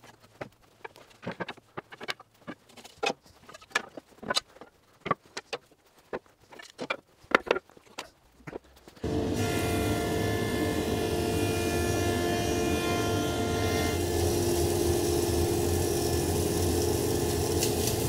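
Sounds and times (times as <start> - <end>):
wood offcuts knocking and clattering: 0.0 - 9.0
jointer motor humming: 9.0 - 18.0.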